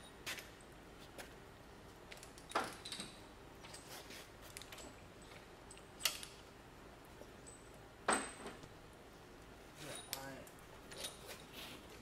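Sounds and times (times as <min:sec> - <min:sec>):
metal clinks of ratchet and bolts: 0:02.1 - 0:03.9, 0:04.5 - 0:06.4, 0:09.8 - 0:11.5.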